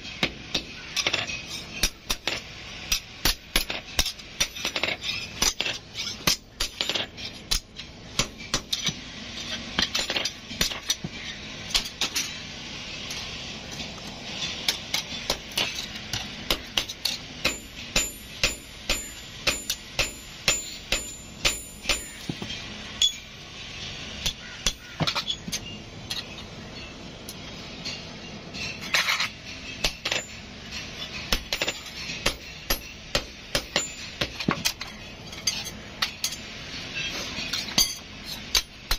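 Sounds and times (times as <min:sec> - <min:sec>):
hammer striking metal on anvil: 0:00.2 - 0:09.0, 0:14.7 - 0:23.3, 0:24.2 - 0:25.7, 0:29.8 - 0:34.9, 0:37.6 - 0:38.9.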